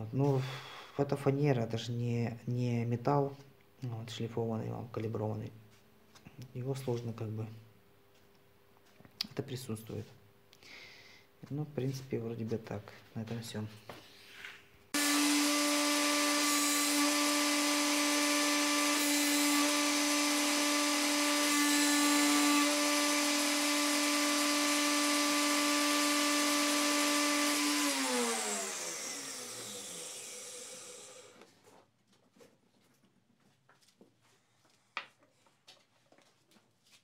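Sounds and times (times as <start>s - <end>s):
electric motor humming: 15.0s - 31.4s
motor winding down: 15.0s - 31.4s.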